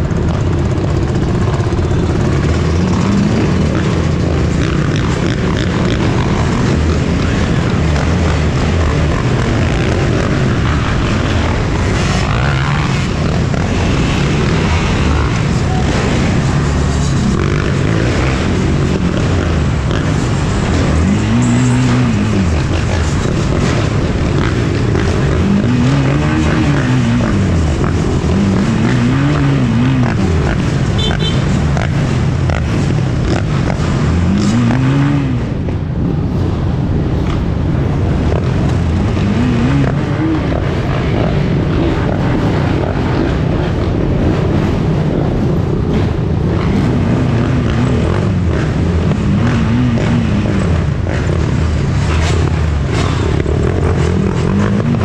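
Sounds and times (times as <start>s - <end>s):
dirt bike engine revving: 0.0s - 35.7s, 37.6s - 55.0s
rushing road noise: 0.0s - 55.0s.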